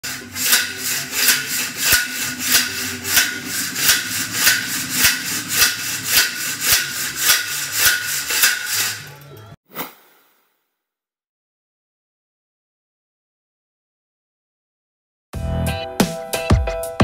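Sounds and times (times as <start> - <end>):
steel gate lattice sliding: 0.0 - 9.6.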